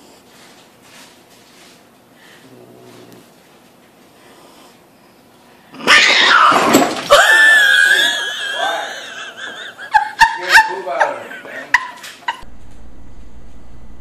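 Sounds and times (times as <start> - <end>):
cat yowling: 5.8 - 8.3.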